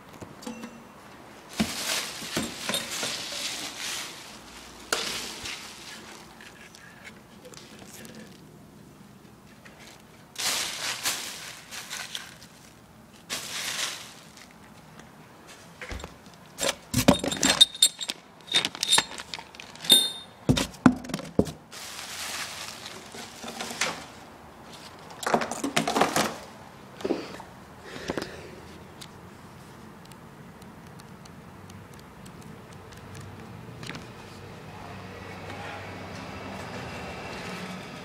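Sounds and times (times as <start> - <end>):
plastic packaging crinkling: 1.5 - 6.8, 9.9 - 14.8, 18.0 - 19.9, 21.7 - 24.2
metal parts jingling in bag: 2.2 - 3.8, 17.0 - 20.4.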